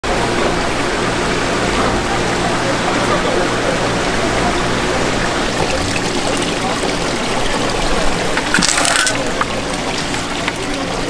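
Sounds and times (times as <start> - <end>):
water pouring and splashing: 0.2 - 11.0.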